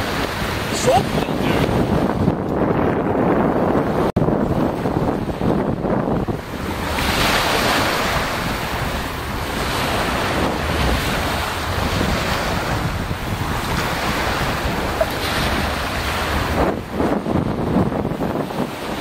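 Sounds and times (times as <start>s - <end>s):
wind buffeting microphone: 0.0s - 19.0s
small waves on a pebbly shore: 6.4s - 17.2s.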